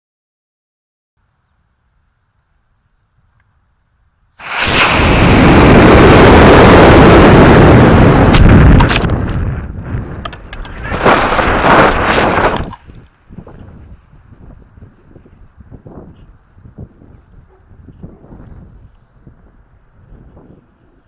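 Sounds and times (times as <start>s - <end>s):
roar of rocket thrust and air: 4.4s - 12.8s
rocket motor igniting: 4.4s - 12.8s.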